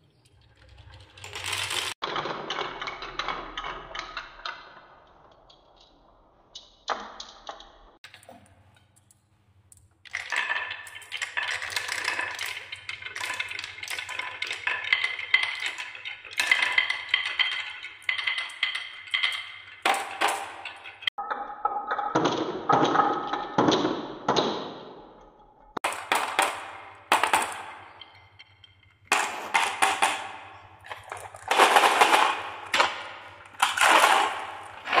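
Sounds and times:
marbles clattering on wooden track: 0:00.0 - 0:25.2, 0:25.8 - 0:35.0.

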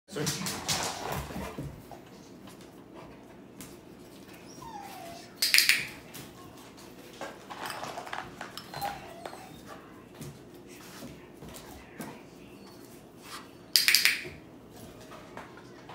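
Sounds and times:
dog whimpering: 0:04.4 - 0:05.9, 0:08.4 - 0:09.9.

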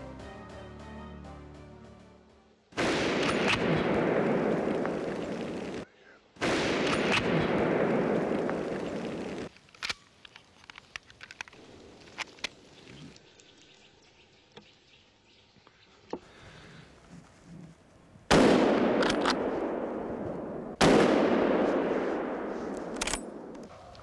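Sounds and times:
rifle magazine clicks: 0:19.0 - 0:19.4, 0:22.7 - 0:23.7.

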